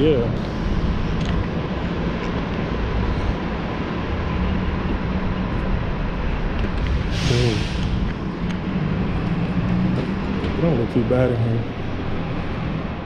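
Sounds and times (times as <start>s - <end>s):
bus engine idling: 0.0s - 13.0s
curbside traffic: 0.0s - 13.0s.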